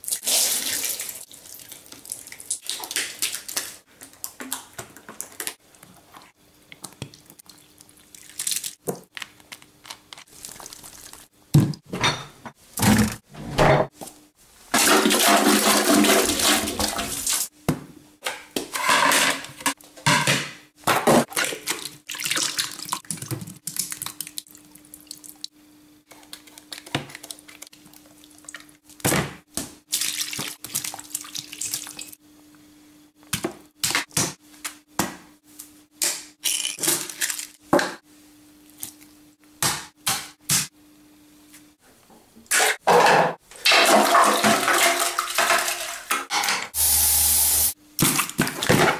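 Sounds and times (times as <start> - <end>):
water rushing in toilet bowl: 14.8 - 17.5.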